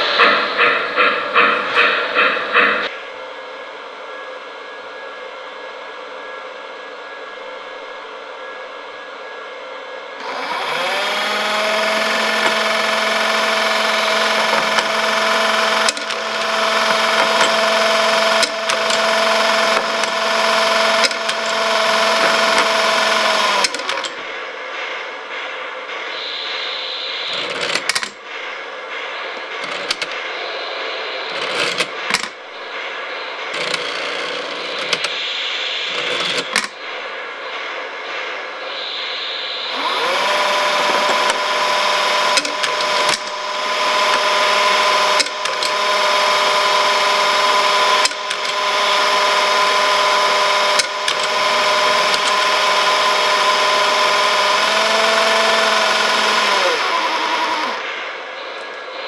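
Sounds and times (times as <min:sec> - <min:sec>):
electric motor gear whine: 0:10.2 - 0:24.2, 0:38.7 - 0:59.0.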